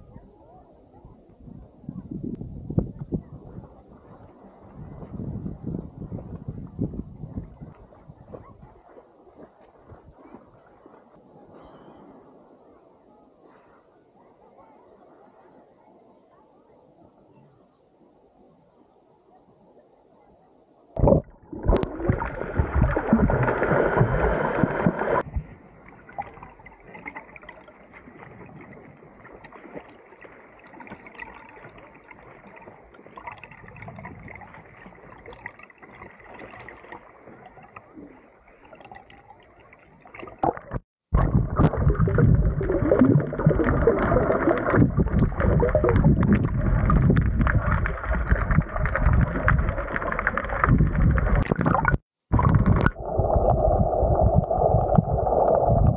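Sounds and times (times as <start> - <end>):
muffled underwater churning and bubbling: 21.0 - 55.9.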